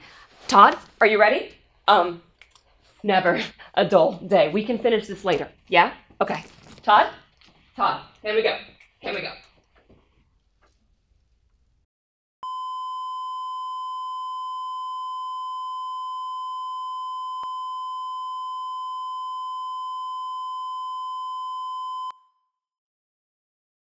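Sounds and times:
electronic test tone: 12.4s - 22.2s.

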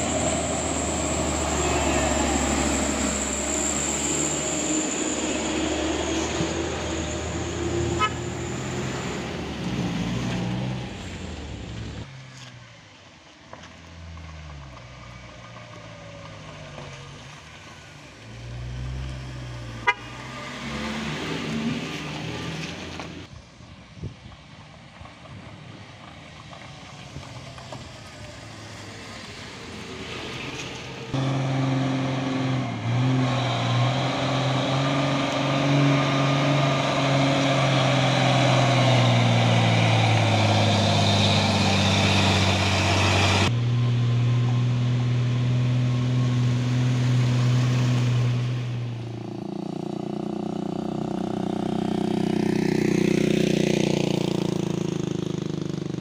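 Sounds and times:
diesel truck engine running: 0.0s - 12.0s
minivan engine passing: 0.0s - 23.3s, 24.8s - 56.0s
distant engines: 0.0s - 56.0s.

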